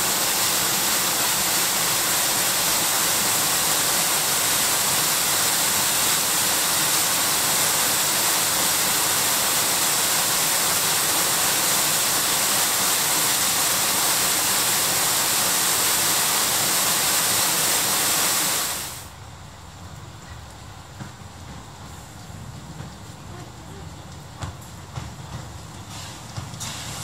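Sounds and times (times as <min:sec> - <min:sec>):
waterfall rushing: 0:00.0 - 0:19.1.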